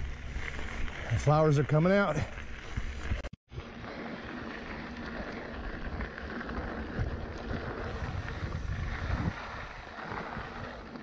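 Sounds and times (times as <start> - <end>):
bike rolling on dirt trail: 0.0 - 11.0
wind buffeting microphone: 5.1 - 11.0.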